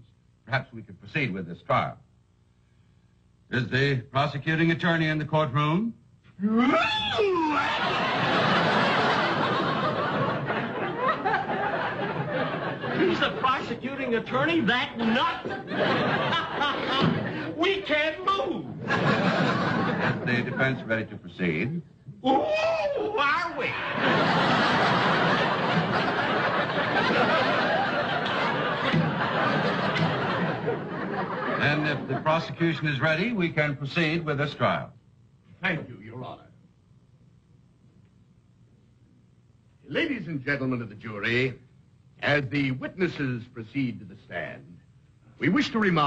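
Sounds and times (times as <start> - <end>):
man's drawn-out exclamation: 6.4 - 7.8
studio audience laughing: 7.5 - 17.6, 18.7 - 21.1, 23.6 - 32.6.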